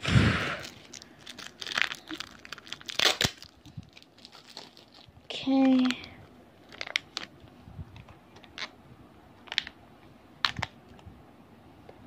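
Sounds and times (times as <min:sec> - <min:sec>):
plastic packaging clicks and crinkles: 0:00.6 - 0:08.8, 0:09.4 - 0:09.8, 0:10.4 - 0:11.0.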